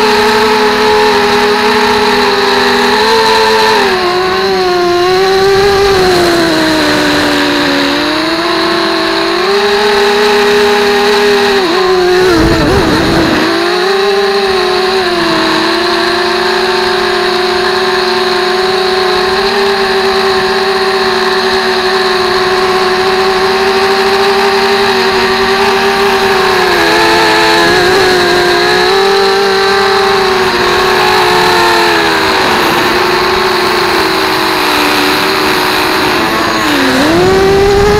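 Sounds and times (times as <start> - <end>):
model plane motor whine: 0.0 - 37.9
wind rumble on microphone: 12.1 - 13.5, 36.9 - 37.9.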